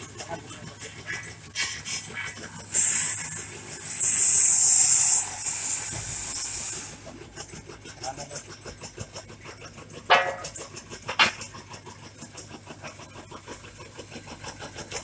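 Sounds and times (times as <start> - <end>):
tobacco shredding machine: 0.0 - 15.0
loud rasping bursts: 1.0 - 8.6
high hiss: 2.7 - 7.0.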